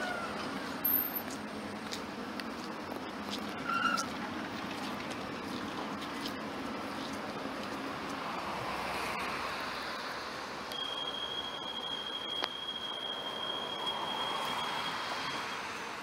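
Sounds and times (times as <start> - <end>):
high-pitched warning beep: 10.7 - 15.8.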